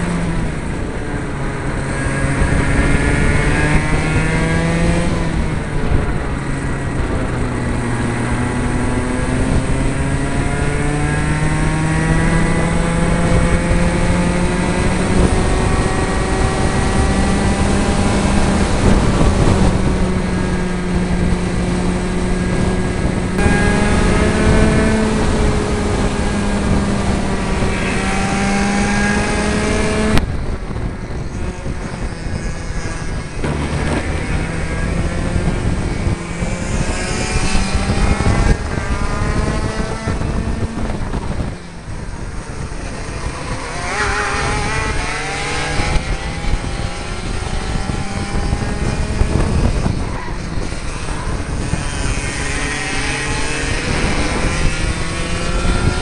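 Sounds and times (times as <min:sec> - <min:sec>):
kart engines at racing speed: 0:00.0 - 0:56.0
second kart engine alongside: 0:00.0 - 0:56.0.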